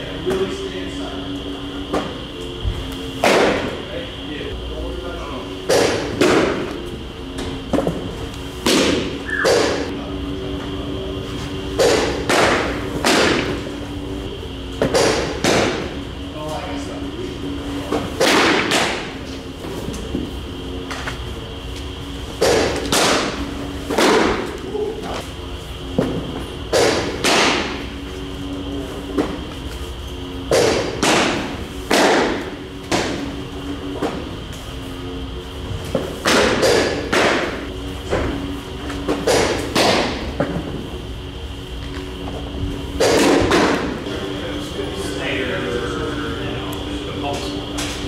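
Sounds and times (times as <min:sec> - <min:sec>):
baseballs hitting a catcher's mitt: 0:03.2 - 0:03.7, 0:05.7 - 0:06.7, 0:07.4 - 0:09.9, 0:11.8 - 0:13.6, 0:14.8 - 0:15.9, 0:17.9 - 0:19.1, 0:22.4 - 0:24.6, 0:26.0 - 0:27.8, 0:30.5 - 0:33.3, 0:35.9 - 0:38.3, 0:39.0 - 0:40.8, 0:43.0 - 0:43.9.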